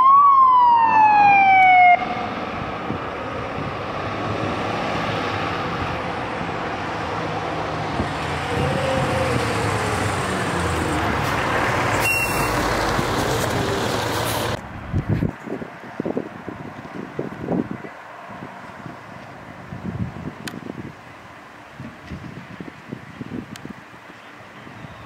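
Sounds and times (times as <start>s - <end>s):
fire engine diesel driving past: 0.0s - 15.3s
wind buffeting microphone: 2.0s - 12.0s, 12.6s - 21.1s, 21.7s - 25.0s.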